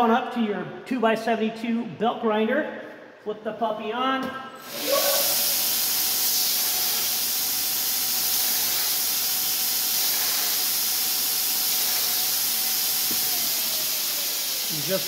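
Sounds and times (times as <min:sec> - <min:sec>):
belt grinder grinding metal: 0:04.6 - 0:15.0.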